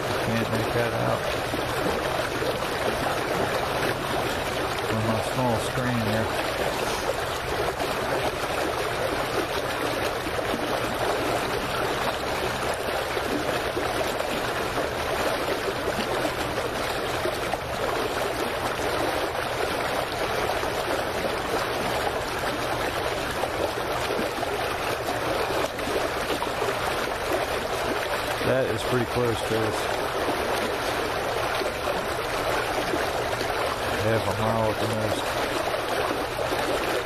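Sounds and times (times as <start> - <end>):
waves lapping against dock: 0.0 - 37.0.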